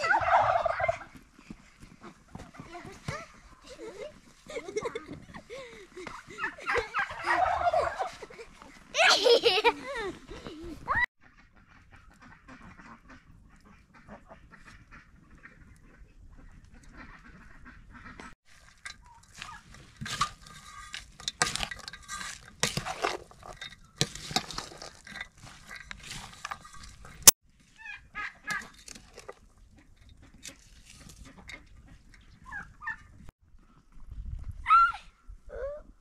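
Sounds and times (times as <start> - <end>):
chickens clucking: 0.0 - 1.2, 3.4 - 8.8
wooden spoon stirring rice: 18.5 - 27.2.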